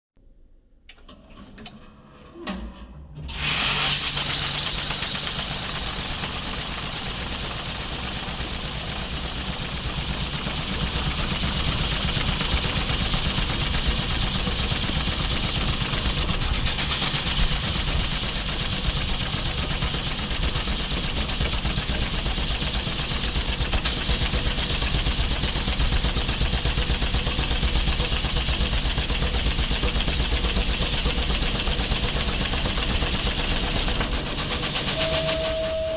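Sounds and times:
banknote counting machine fluttering: 0:03.3 - 0:35.9.

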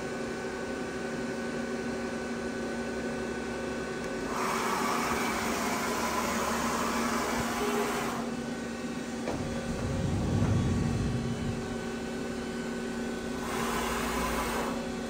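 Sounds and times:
machine hum: 0:08.5 - 0:15.0
low rumble: 0:09.2 - 0:13.2.

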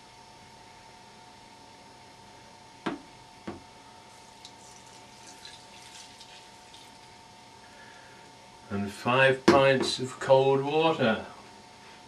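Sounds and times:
liquid splashing and dripping: 0:04.1 - 0:07.2.

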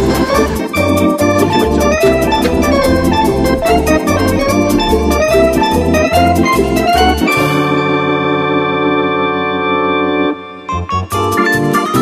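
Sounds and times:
organ-like keyboard music: 0:00.0 - 0:07.5.

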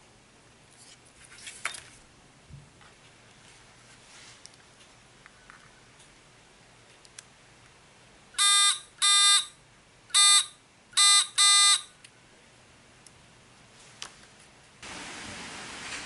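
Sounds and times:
short electric buzzer buzzes: 0:08.4 - 0:09.5, 0:10.1 - 0:11.9.

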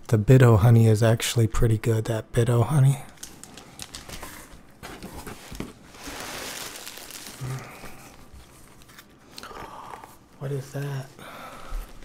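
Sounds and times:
plastic packing and cardboard rustling: 0:03.1 - 0:09.3.

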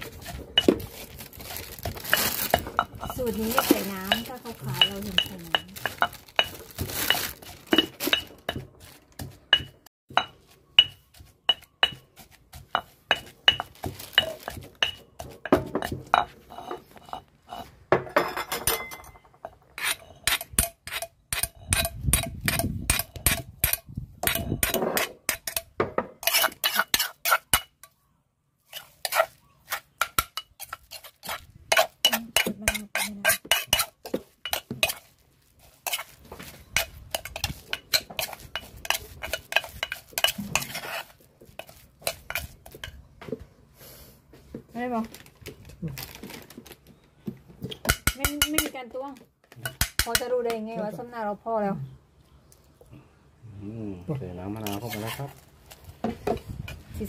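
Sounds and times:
pestle knocking in stone mortar: 0:01.8 - 0:16.3, 0:20.3 - 0:27.8, 0:47.7 - 0:48.7, 0:49.6 - 0:50.6
metal spoon scraping stone: 0:19.8 - 0:28.0, 0:28.7 - 0:43.0, 0:54.6 - 0:55.4.

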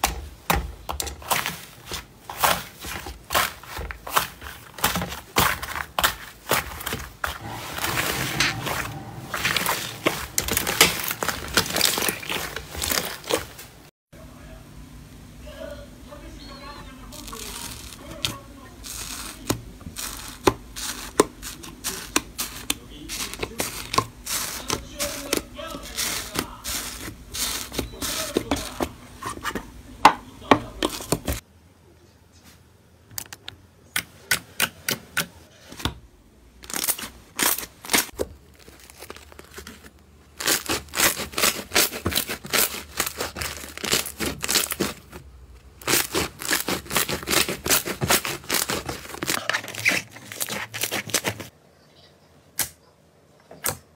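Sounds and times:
slime crackling and popping: 0:08.2 - 0:13.5, 0:17.1 - 0:28.9, 0:36.6 - 0:51.5.

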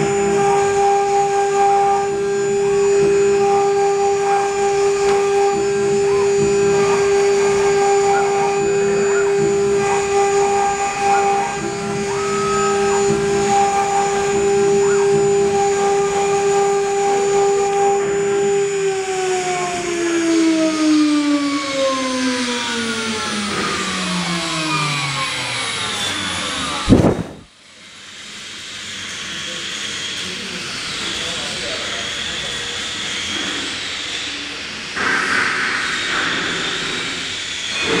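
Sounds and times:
router spindles whining: 0:00.0 - 0:27.5
hiss of wood cutting: 0:00.0 - 0:38.0.

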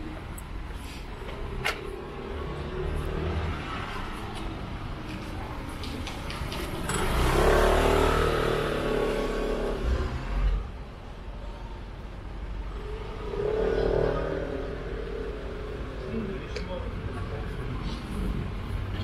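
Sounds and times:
vehicle driving past: 0:01.8 - 0:04.2, 0:06.6 - 0:10.8, 0:12.4 - 0:16.5
second vehicle engine: 0:05.9 - 0:10.9.

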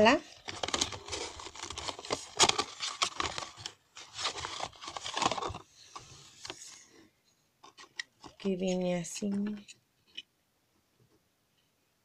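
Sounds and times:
cardboard rustling and scraping: 0:00.4 - 0:06.9.

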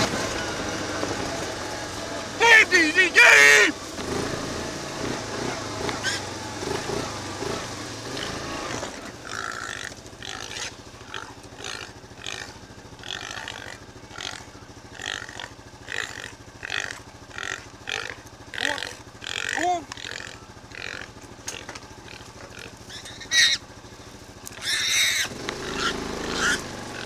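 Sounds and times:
low engine hum: 0:00.0 - 0:27.0
pig squealing and grunting: 0:05.8 - 0:06.3, 0:08.1 - 0:23.6, 0:24.5 - 0:27.0.

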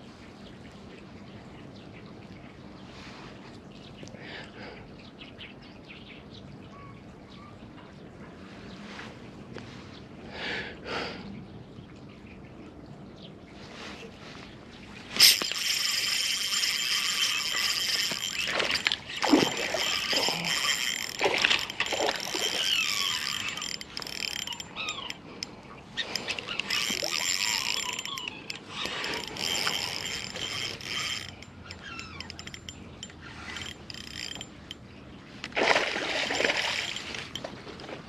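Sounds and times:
fishing reel gears whirring: 0:15.1 - 0:37.5.

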